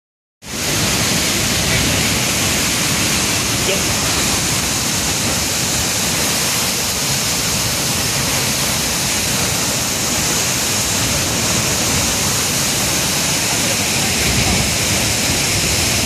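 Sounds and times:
white water rushing: 0.4 - 16.0.

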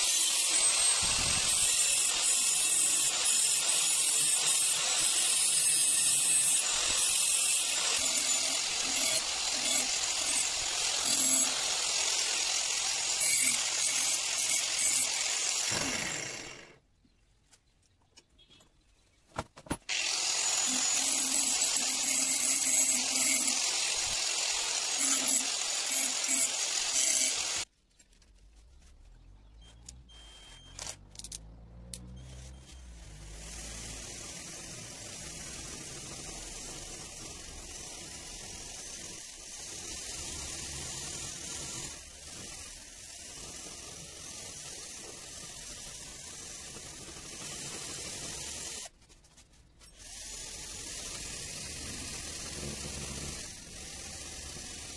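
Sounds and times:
cordless drill drilling steel: 0.0 - 16.8, 19.9 - 27.7, 32.3 - 48.9, 49.9 - 54.9.

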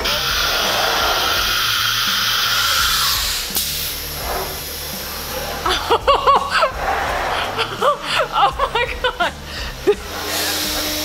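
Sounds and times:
sharp pneumatic click: 0.0 - 4.8
compressed air hissing: 0.0 - 11.0.

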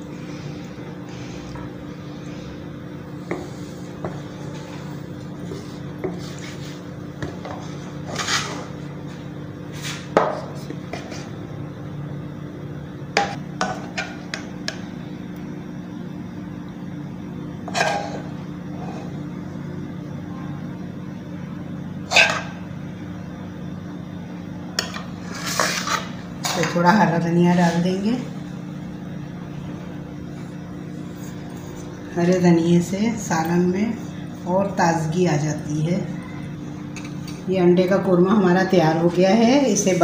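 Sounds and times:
steady low hum: 0.0 - 40.0
wooden spatula scraping pan: 17.7 - 18.2.

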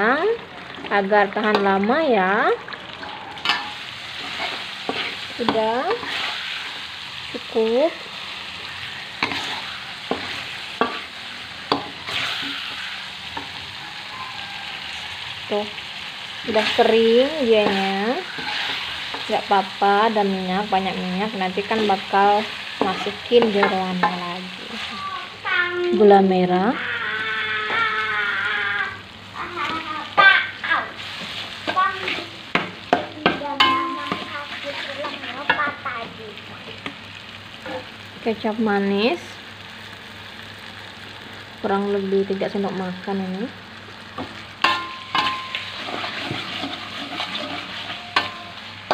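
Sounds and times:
paste sizzling in oil: 0.1 - 48.9
metal spoon scraping wok: 3.0 - 8.0, 8.6 - 15.7, 16.4 - 20.2, 21.4 - 24.9, 31.0 - 32.4, 44.6 - 48.9
spoon squeaking: 12.1 - 15.4
spatula clacking against pan: 44.6 - 45.6.

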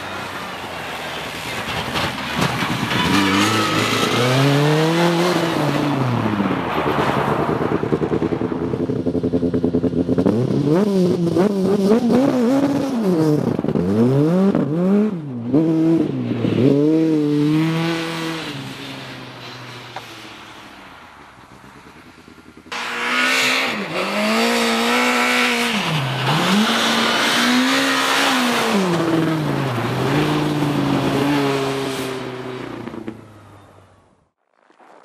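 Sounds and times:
car engine revving hard: 22.7 - 33.0.

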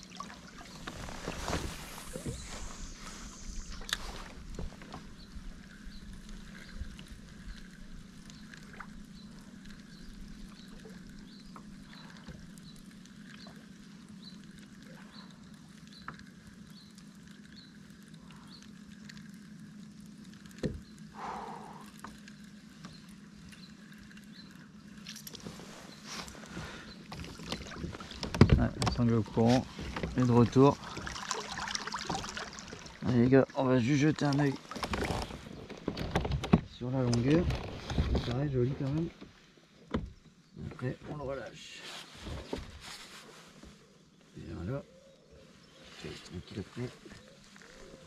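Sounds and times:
low steady hum: 0.0 - 48.0.

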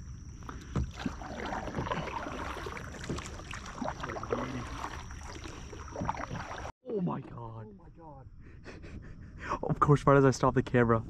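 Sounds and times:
water splashing and dripping: 0.4 - 6.7.

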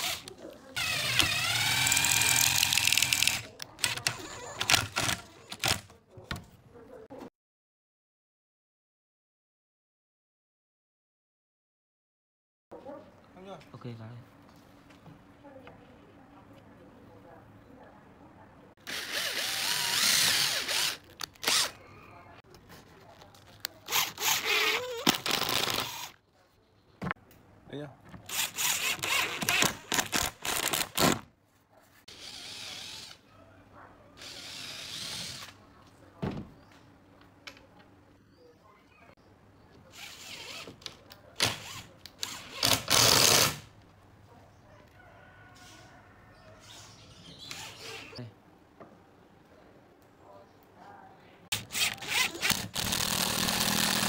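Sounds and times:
cordless drill boring into wood: 0.0 - 5.8, 18.8 - 21.7, 23.9 - 26.1, 28.3 - 31.1, 32.1 - 33.2, 34.2 - 35.5, 41.4 - 43.6, 51.5 - 54.0
drill driving screw into wood: 0.0 - 5.8, 18.8 - 21.7, 23.9 - 26.1, 28.3 - 31.2, 32.1 - 33.2, 34.2 - 35.6, 41.4 - 43.7, 51.5 - 54.0
impact driver driving screw: 0.0 - 5.8, 51.5 - 54.0.

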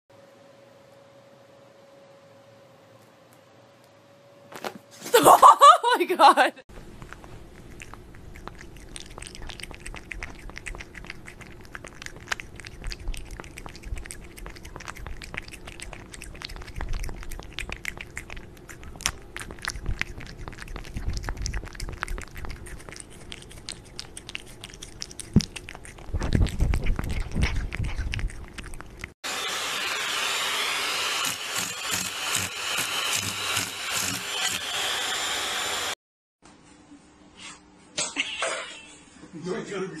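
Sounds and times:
cat licking and chewing: 6.8 - 29.2
steady machine noise: 29.3 - 36.0.

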